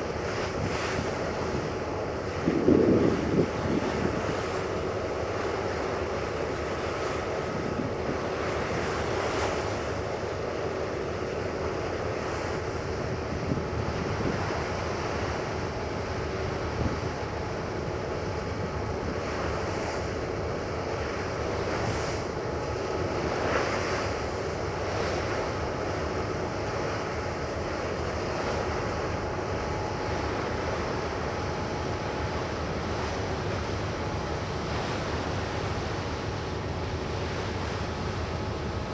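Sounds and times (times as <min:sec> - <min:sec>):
faint ferry engine hum: 0:00.0 - 0:38.9
waves washing: 0:00.0 - 0:38.9
wind buffeting microphone: 0:00.5 - 0:04.5.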